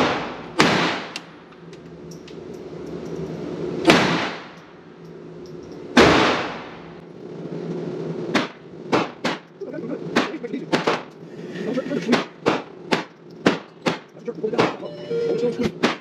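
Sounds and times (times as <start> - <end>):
pistol shots echoing indoors: 0.0 - 1.4, 3.8 - 4.6, 5.9 - 6.8.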